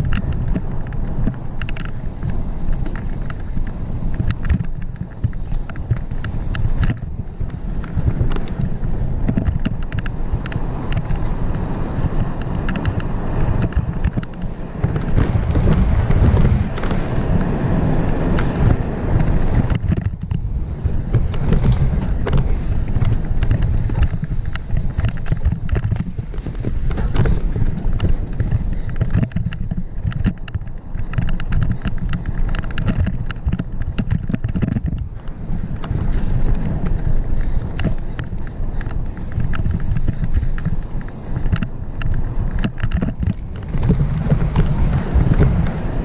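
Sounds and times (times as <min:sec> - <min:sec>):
bike rattling on rough ground: 0:00.0 - 0:46.0
wind buffeting microphone: 0:00.0 - 0:46.0.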